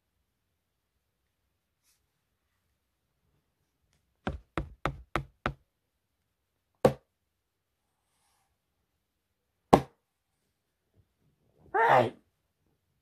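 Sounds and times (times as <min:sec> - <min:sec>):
knocks: 0:04.2 - 0:05.6.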